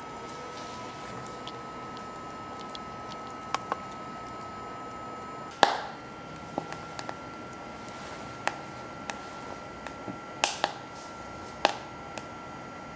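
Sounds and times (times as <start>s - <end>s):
wood fire crackling and popping: 0.0s - 12.4s
high fan whine: 0.0s - 12.9s.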